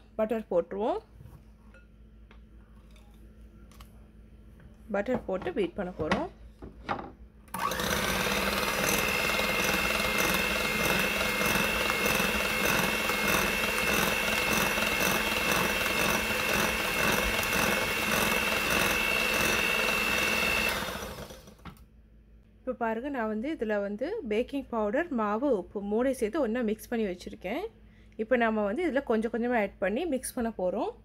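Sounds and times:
electric hand mixer whining: 7.5s - 21.6s.

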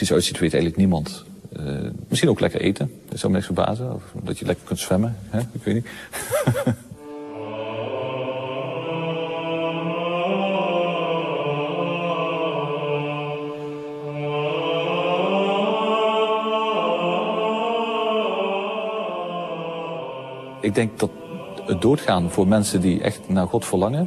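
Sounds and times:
choir chanting: 7.1s - 24.0s.

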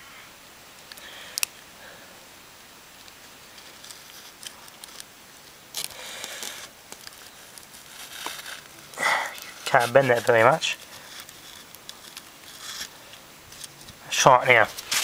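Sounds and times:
scraping rustles in sand: 7.2s - 13.0s, 14.6s - 15.0s.

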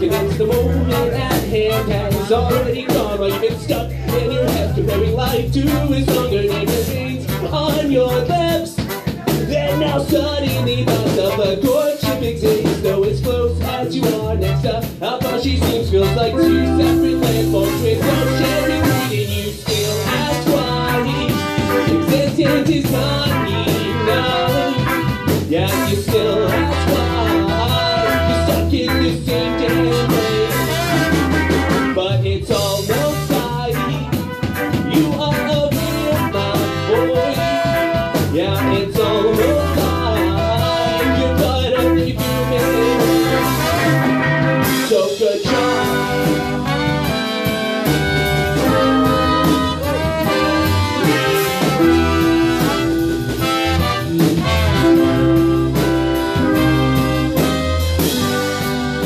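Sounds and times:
electric bass: 0.0s - 59.0s
live band playing: 0.0s - 59.0s
horn section with trumpet: 14.5s - 59.0s
electric guitar: 16.1s - 32.0s, 32.8s - 59.0s.

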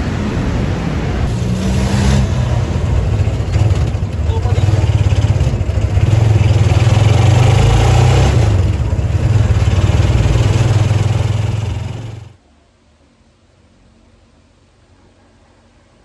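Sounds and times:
road noise: 0.0s - 12.4s
vehicle engine running: 0.0s - 12.4s.

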